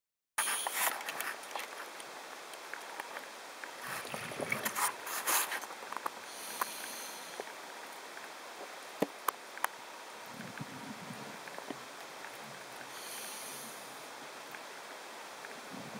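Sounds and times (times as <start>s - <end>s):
clicks and crackles: 0.4s - 9.8s
underwater hiss: 3.8s - 7.5s, 12.8s - 14.1s.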